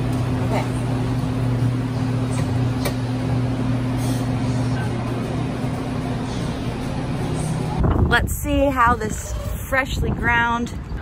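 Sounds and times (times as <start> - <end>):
coffee machine motor hum: 0.0 - 8.1.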